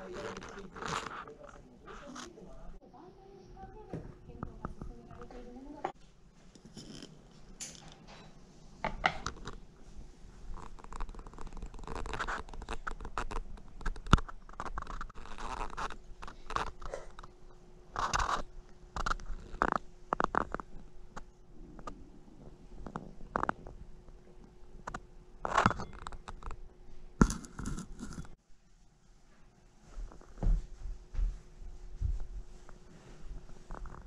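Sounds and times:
faint steady hum: 0.0s - 34.0s
dishes clicking and scraping: 4.4s - 9.6s.

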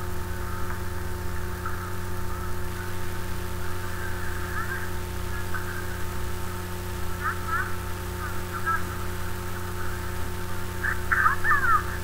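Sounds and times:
electrical mains hum: 0.0s - 12.0s
squawky dialogue: 3.8s - 12.0s.

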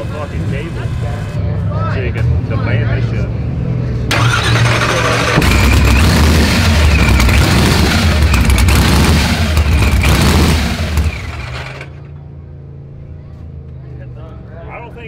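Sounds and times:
truck engine revving and crackling: 3.6s - 14.4s.

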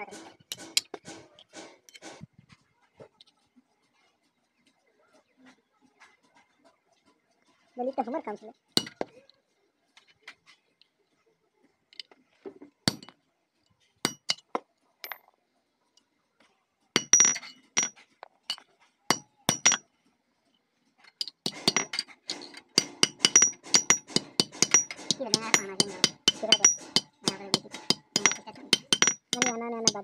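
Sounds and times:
hammer striking sheet metal: 0.0s - 2.2s, 21.5s - 30.0s.

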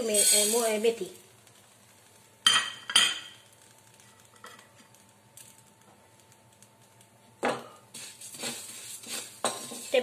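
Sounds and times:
kitchenware clinking: 2.5s - 3.4s, 9.4s - 10.0s.

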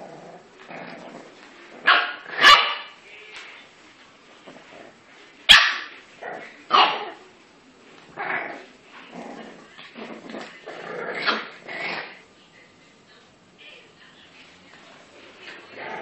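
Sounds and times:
puppies barking: 1.9s - 3.0s, 5.5s - 5.9s.

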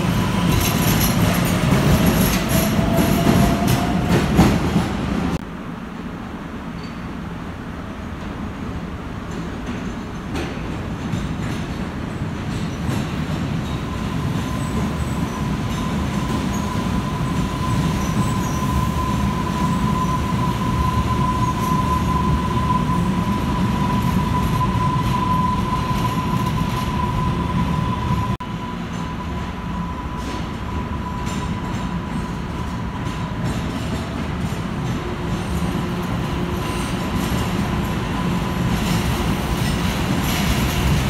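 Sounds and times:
train rumbling: 0.0s - 41.0s
steel wheels squealing: 13.6s - 34.0s.

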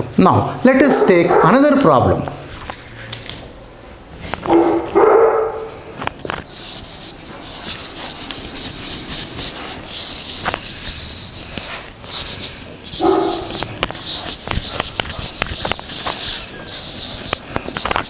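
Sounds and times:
dog barking: 0.8s - 1.7s, 4.5s - 5.8s, 13.0s - 13.6s
eraser rubbing a chalkboard: 6.3s - 18.0s.

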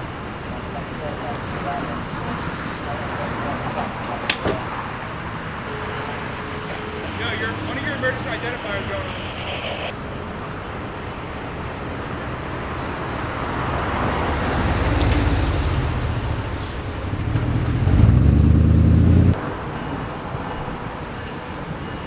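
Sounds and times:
vehicle engine running: 14.2s - 19.4s.

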